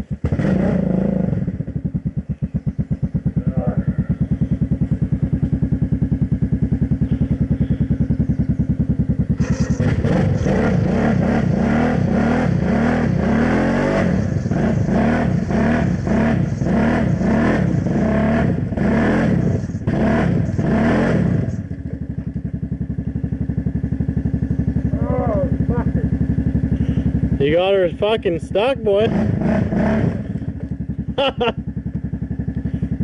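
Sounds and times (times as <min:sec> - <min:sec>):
atv engine idling and revving: 0:00.0 - 0:33.0
tires churning mud: 0:09.0 - 0:21.8, 0:24.8 - 0:30.5.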